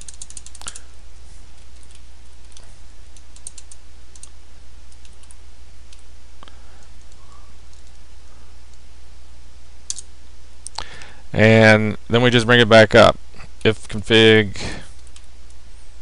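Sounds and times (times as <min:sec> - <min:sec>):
keyboard typing clicks: 0:00.0 - 0:00.8, 0:03.2 - 0:04.3, 0:09.9 - 0:10.1
steady low hum: 0:00.0 - 0:16.0.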